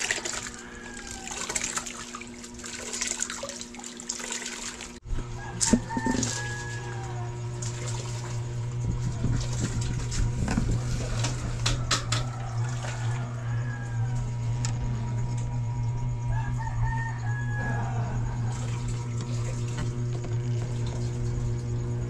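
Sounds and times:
rooster crowing: 0.2 - 2.0, 5.2 - 7.6, 9.4 - 19.2
low hum: 5.0 - 22.0.

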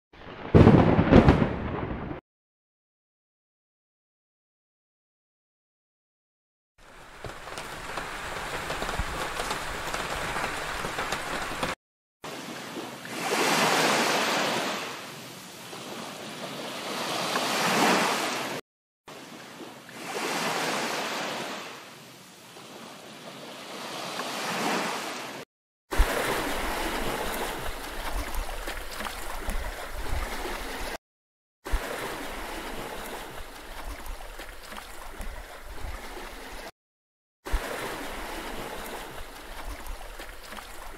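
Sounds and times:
water rushing with low rumble: 6.8 - 16.9, 26.0 - 31.0, 31.7 - 36.7, 37.5 - 40.9
sea waves surging: 6.8 - 31.0, 31.7 - 36.7, 37.5 - 40.9.

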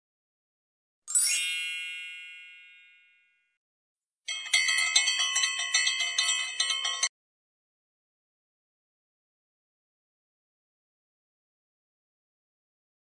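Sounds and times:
jingly run of bell notes: 1.1 - 3.4, 4.3 - 7.1
bell-like chime: 1.1 - 3.5, 4.3 - 7.1.

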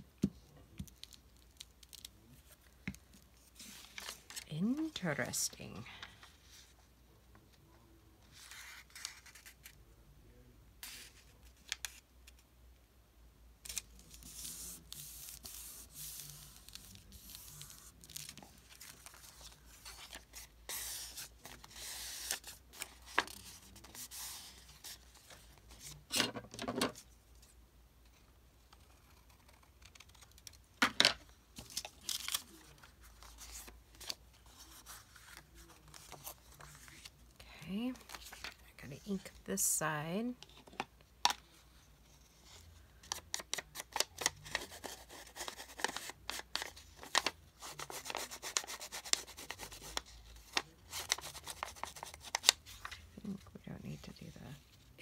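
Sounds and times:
paper sheets rustling: 38.0 - 38.6.

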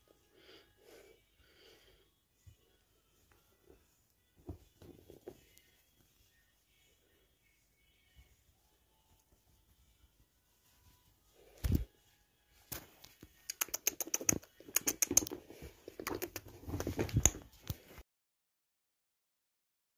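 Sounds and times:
kitten clicking and scuffling: 12.6 - 18.0.

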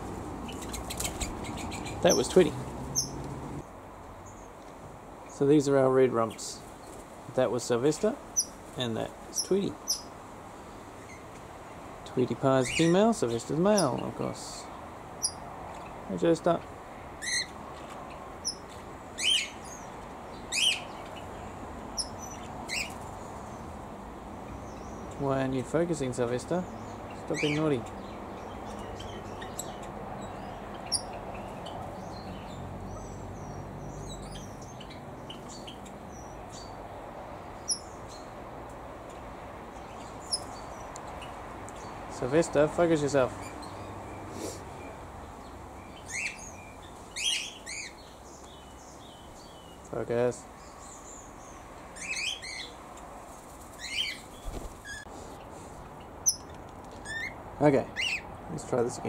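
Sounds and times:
small birds chirping: 0.0 - 59.0
steady background hiss: 0.0 - 59.0
sharp loud bird chips: 0.5 - 3.2, 46.0 - 49.8, 53.7 - 55.1.

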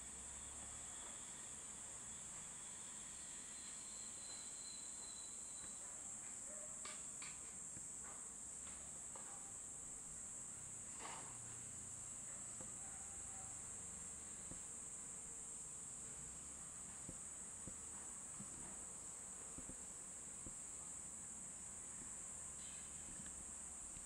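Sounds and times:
high-pitched insect drone: 0.3 - 5.9, 22.4 - 23.3
faint short chirps: 3.6 - 5.8.

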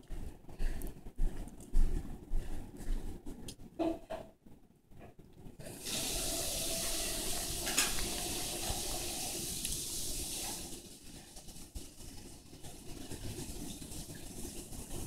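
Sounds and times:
running water rushing: 5.7 - 11.7.

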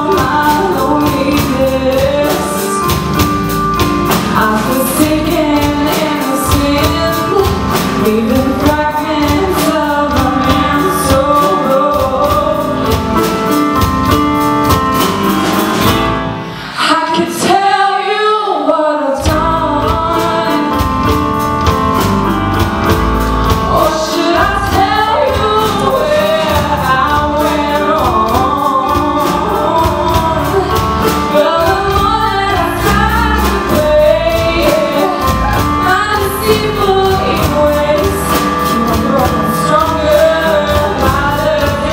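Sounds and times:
woman singing lead: 0.0 - 14.2, 16.2 - 41.9
live band playing soul rock: 0.0 - 18.0, 19.2 - 41.9.

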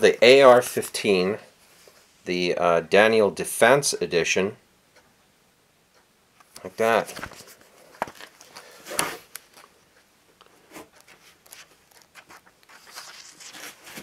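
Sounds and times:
magazine pages rustling: 0.0 - 1.2, 6.4 - 9.8, 10.6 - 14.0.

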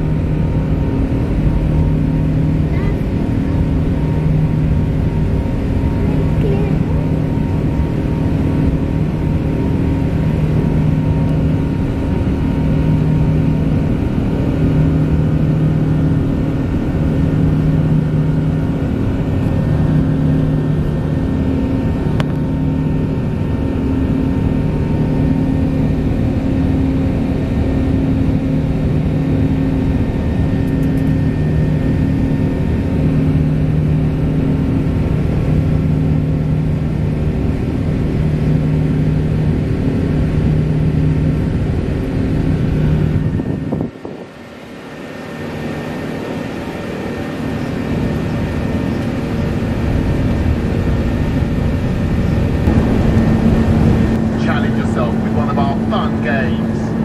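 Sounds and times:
jet engine drone in cabin: 0.0 - 57.0
low pulsing hum: 0.0 - 57.0.

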